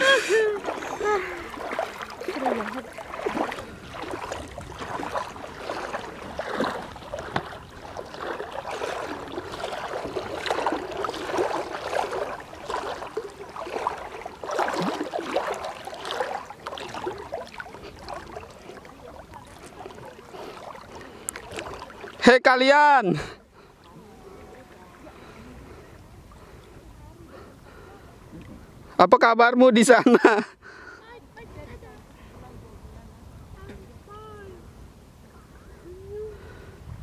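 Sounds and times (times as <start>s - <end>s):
seawater sloshing and splashing: 0.0s - 22.5s.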